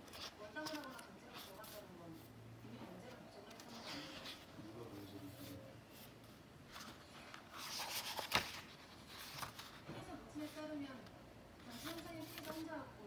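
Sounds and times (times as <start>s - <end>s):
book pages turning: 0.0s - 1.9s, 6.7s - 10.6s, 11.6s - 12.7s.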